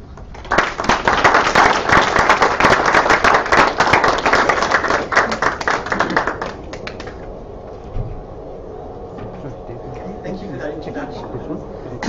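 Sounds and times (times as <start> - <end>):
small audience applauding: 0.2 - 7.3.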